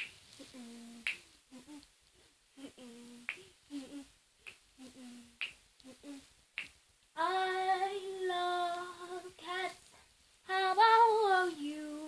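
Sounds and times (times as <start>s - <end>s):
girl humming: 0.4s - 1.9s, 2.6s - 4.1s, 4.8s - 6.3s
finger snaps: 1.0s - 1.9s, 3.2s - 3.5s, 4.4s - 4.6s, 5.4s - 6.0s, 6.6s - 6.8s.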